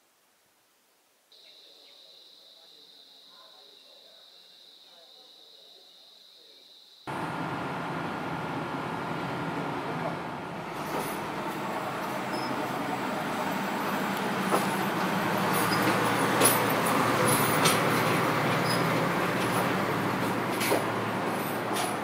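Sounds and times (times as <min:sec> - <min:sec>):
railcar engine droning: 0:07.1 - 0:22.0.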